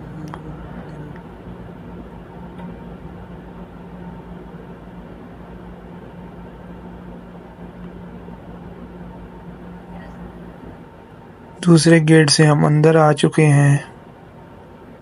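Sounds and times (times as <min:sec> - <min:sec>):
mechanical hum: 0:00.0 - 0:15.0.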